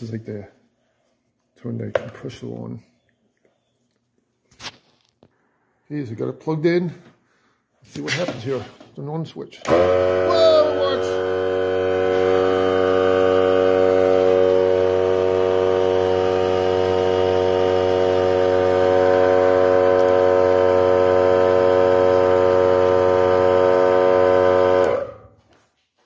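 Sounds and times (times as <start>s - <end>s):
air compressor whining drone: 9.6s - 25.6s.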